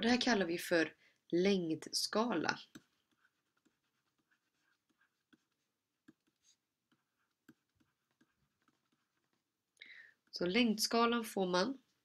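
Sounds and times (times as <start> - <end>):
stylus tapping on tablet: 2.6 - 9.4.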